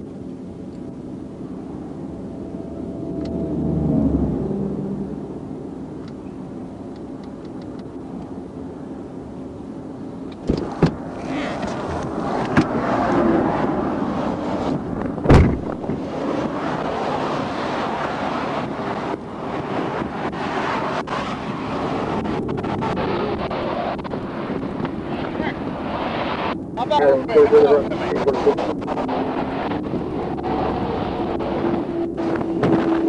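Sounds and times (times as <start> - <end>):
cars passing on highway: 0.0 - 33.0
wind on the microphone: 10.3 - 33.0
loud thump: 15.2 - 16.0.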